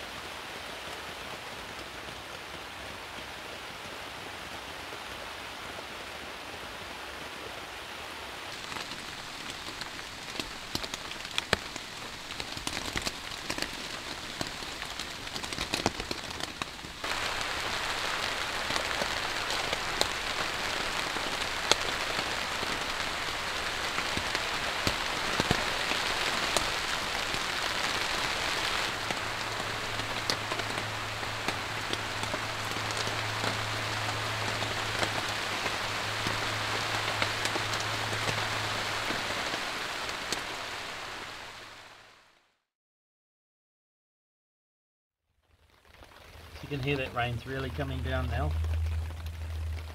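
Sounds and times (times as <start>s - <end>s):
rain falling on a tarp: 0.0s - 42.6s, 45.3s - 49.9s
low steady hum: 46.5s - 49.9s.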